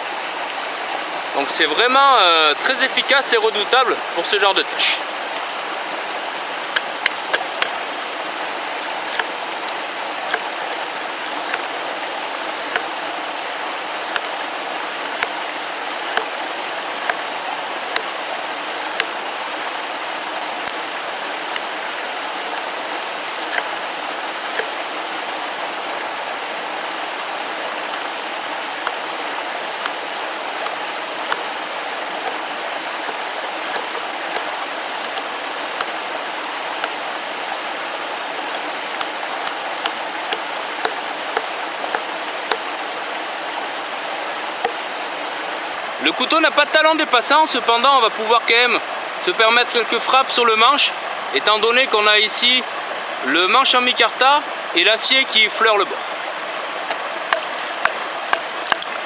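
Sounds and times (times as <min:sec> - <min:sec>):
stream rushing: 0:00.0 - 0:59.0
knife chopping into wood: 0:10.2 - 0:10.5, 0:12.6 - 0:12.9, 0:14.0 - 0:14.4, 0:16.0 - 0:16.3, 0:18.8 - 0:19.1, 0:23.4 - 0:23.7, 0:24.5 - 0:24.7, 0:57.3 - 0:58.9.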